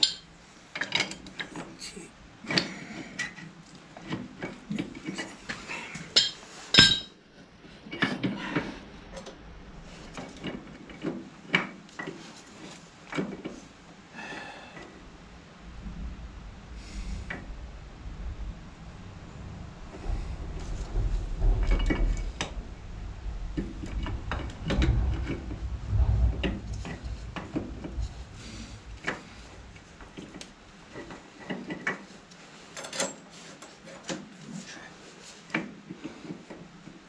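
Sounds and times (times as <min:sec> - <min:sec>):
metal clinks and scrapes of brake parts: 0:06.1 - 0:07.2, 0:32.7 - 0:34.1.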